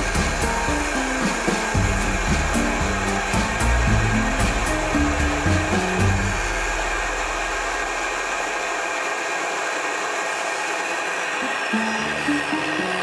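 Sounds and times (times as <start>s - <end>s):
background music with low notes: 0.0s - 7.9s, 11.4s - 13.0s
small jet engine hissing: 0.0s - 13.0s.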